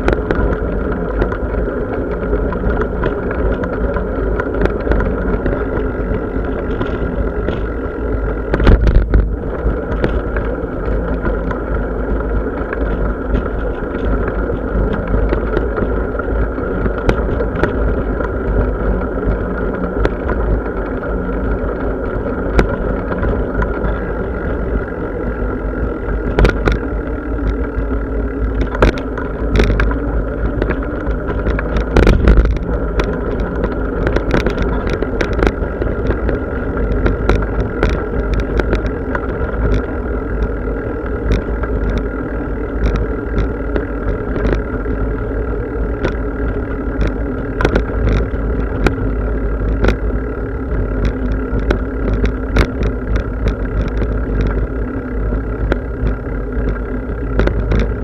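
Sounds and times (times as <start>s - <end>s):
bicycle wind and tyre rumble: 0.0s - 58.0s
bike rattling over bumps: 0.0s - 58.0s.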